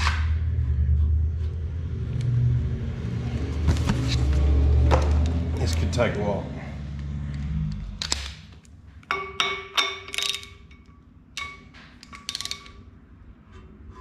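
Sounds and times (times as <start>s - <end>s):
metal tools clinking: 9.1s - 12.8s.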